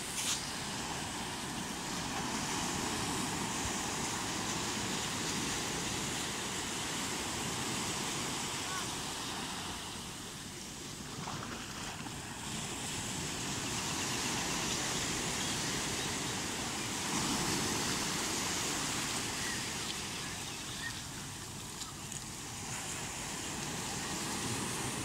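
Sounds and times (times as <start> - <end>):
small sea waves breaking: 0.0 - 25.0.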